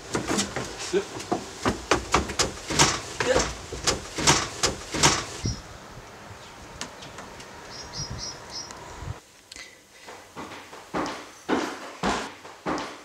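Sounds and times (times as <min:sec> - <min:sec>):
running footsteps on wooden deck: 0:00.0 - 0:05.5, 0:10.0 - 0:13.0
high bird chirps: 0:07.7 - 0:08.8
man breathing heavily: 0:09.5 - 0:10.4.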